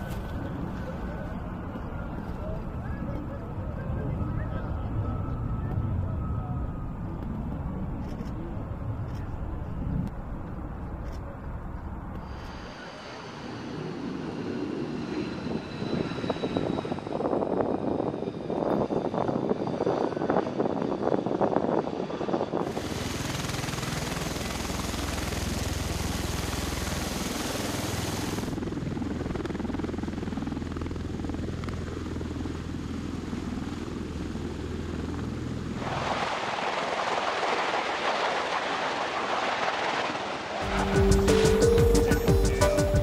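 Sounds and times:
tiltrotor aircraft engines rushing: 0:00.0 - 0:43.0
jet noise: 0:11.9 - 0:29.9, 0:33.0 - 0:43.0
low drone: 0:40.3 - 0:43.0.

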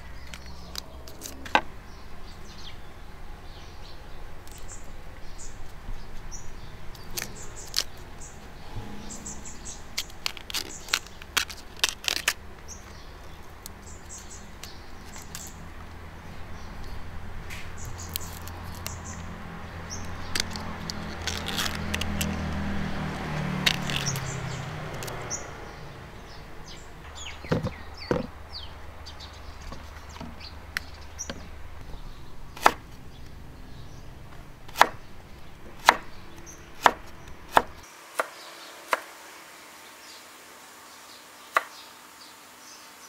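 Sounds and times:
birds chirping faintly: 0:00.0 - 0:43.0
bamboo sheaths snapping and tearing: 0:06.9 - 0:08.1, 0:09.9 - 0:15.8, 0:16.8 - 0:19.3, 0:20.0 - 0:25.3, 0:32.6 - 0:33.4.

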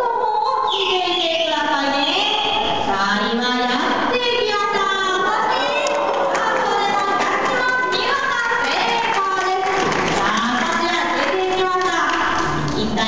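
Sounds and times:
high-pitched voices overlapping: 0:00.0 - 0:03.6, 0:04.2 - 0:09.6.

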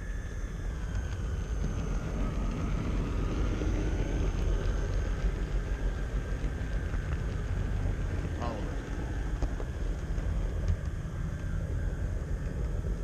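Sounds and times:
faint high whine: 0:00.0 - 0:13.0
model train rumbling: 0:00.0 - 0:13.0.

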